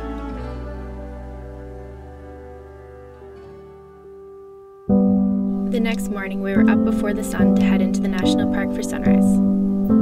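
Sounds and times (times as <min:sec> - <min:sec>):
soft slow instrumental music: 0:00.0 - 0:10.0.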